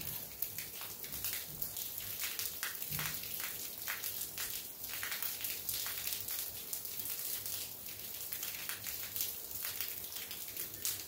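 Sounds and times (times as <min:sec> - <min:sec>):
close raindrop hits: 0:00.0 - 0:06.1.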